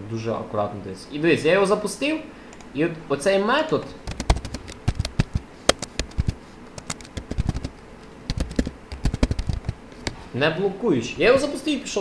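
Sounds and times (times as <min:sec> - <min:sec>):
typing on computer keyboard: 0:04.0 - 0:07.7, 0:08.3 - 0:09.8.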